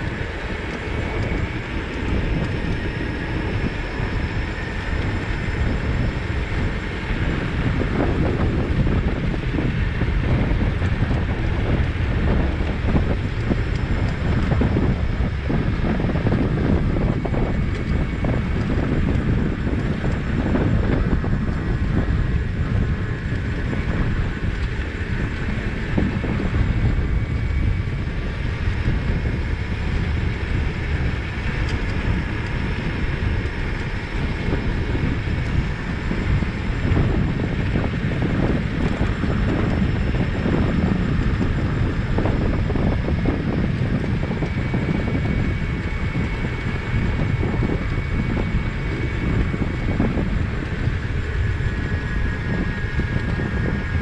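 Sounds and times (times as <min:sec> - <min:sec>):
bicycle tyre and road noise: 0:00.0 - 0:54.0
wind rumble on microphone: 0:00.0 - 0:54.0.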